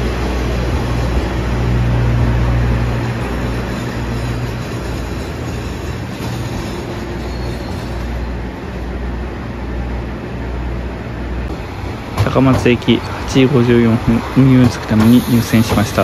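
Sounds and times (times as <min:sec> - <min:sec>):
diesel train engine rumbling: 0:00.0 - 0:16.0
train wheel running noise: 0:11.5 - 0:16.0.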